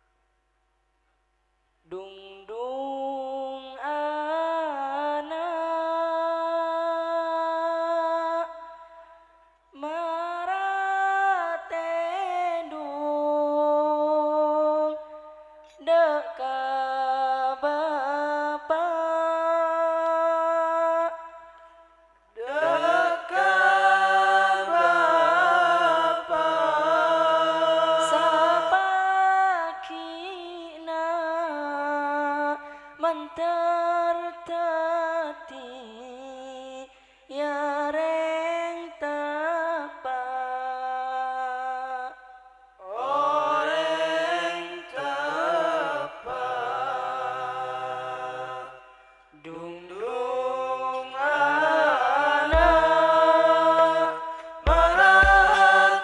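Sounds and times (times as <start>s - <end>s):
man singing through microphone: 1.9s - 8.5s, 49.4s - 56.0s.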